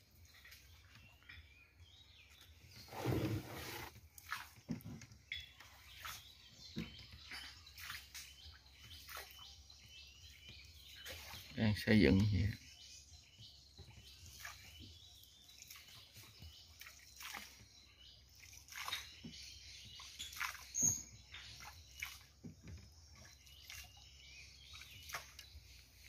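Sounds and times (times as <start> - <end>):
soft irregular crackles and taps: 4.1 - 7.4.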